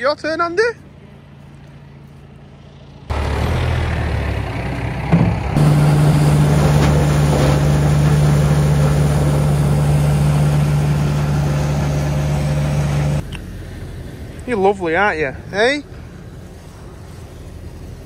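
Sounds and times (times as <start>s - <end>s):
straw blower humming: 3.1s - 13.2s.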